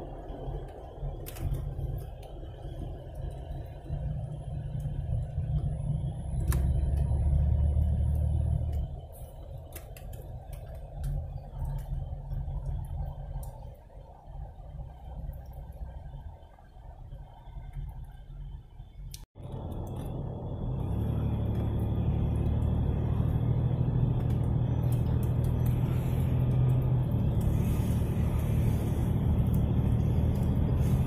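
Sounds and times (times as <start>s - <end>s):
car engine and tyre rumble: 0.0s - 31.0s.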